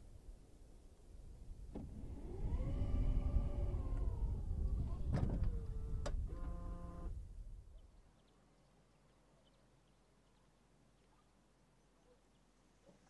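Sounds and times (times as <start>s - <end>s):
tailgate motor whining: 1.7s - 7.2s.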